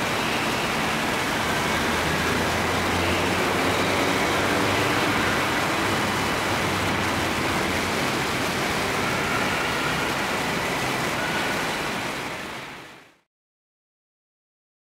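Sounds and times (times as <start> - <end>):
train rushing rail noise: 0.0 - 13.0.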